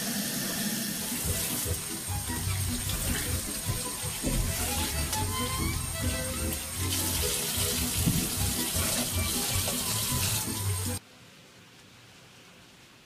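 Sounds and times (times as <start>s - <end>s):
tap water running into colander: 0.0s - 11.0s
background music: 1.0s - 11.0s.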